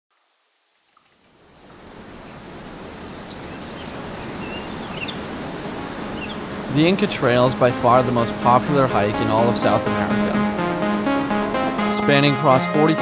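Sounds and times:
small bird chirps: 0:00.2 - 0:05.3, 0:05.9 - 0:06.5
river rushing over rapids: 0:01.7 - 0:12.0.

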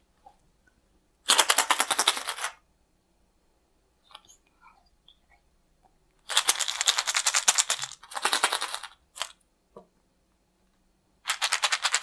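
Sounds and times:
plastic capsules rattling: 0:06.3 - 0:09.4, 0:11.2 - 0:12.0.

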